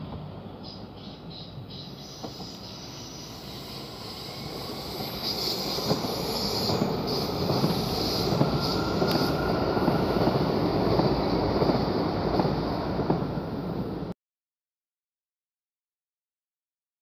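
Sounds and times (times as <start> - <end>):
train wheels rumbling on rails: 0.0 - 14.1.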